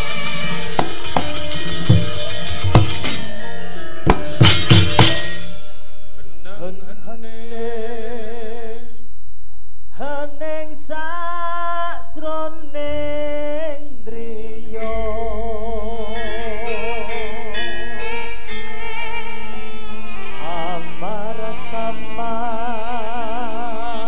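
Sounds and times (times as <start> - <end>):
sharp clattering strikes: 0.3 - 3.5, 4.1 - 6.3
person singing solo: 19.9 - 24.0.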